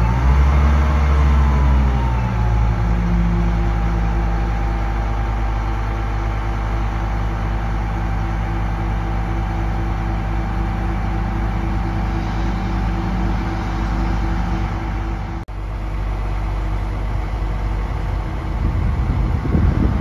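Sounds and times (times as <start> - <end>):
crane diesel engine running: 0.0 - 20.0
low rumble: 10.2 - 20.0.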